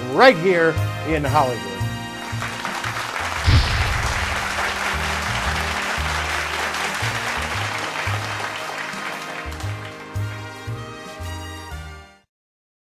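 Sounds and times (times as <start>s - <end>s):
upbeat music with walking bass: 0.4s - 12.2s
audience applauding: 2.0s - 11.0s.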